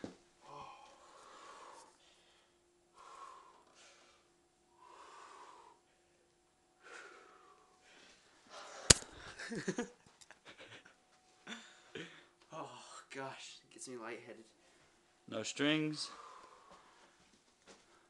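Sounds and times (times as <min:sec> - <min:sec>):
person breathing hard: 0:00.5 - 0:09.2, 0:16.0 - 0:17.2.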